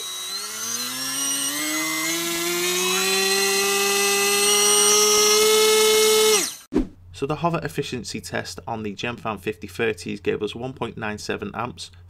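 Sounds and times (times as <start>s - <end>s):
drone motor whine: 0.0s - 6.7s.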